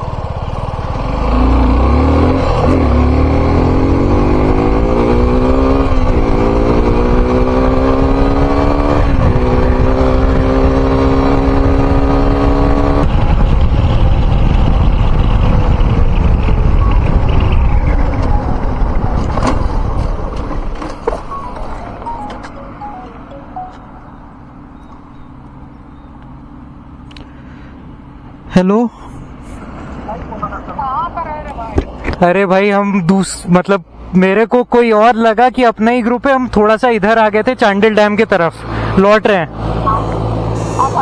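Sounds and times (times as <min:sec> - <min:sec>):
motorcycle engine accelerating: 0:00.0 - 0:22.2
wind and road rush: 0:00.0 - 0:41.0.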